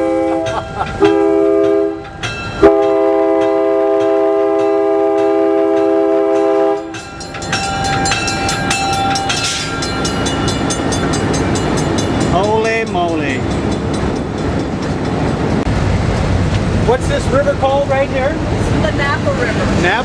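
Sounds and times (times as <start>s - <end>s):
locomotive air horn blasts: 0.0s - 2.0s, 2.6s - 7.0s
locomotive engine rumble: 0.0s - 20.0s
rail clatter: 0.0s - 20.0s.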